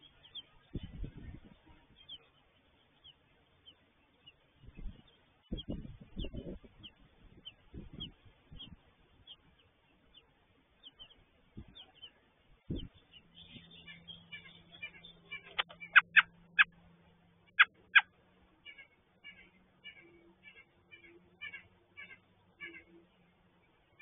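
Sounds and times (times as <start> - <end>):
robin chirping: 0.0 - 16.8, 17.5 - 24.0
faint steady hum: 0.0 - 24.0.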